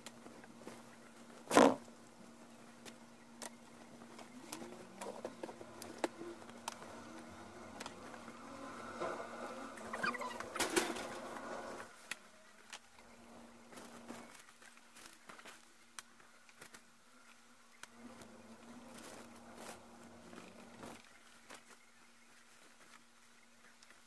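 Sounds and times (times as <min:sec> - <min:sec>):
cardboard egg crates handled: 0:00.0 - 0:24.0
steady low hum: 0:00.0 - 0:24.0
warbling bird-like call: 0:09.5 - 0:10.7.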